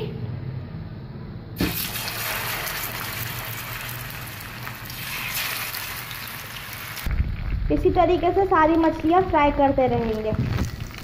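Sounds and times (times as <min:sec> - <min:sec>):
fish sizzling in hot oil: 0:01.6 - 0:07.5.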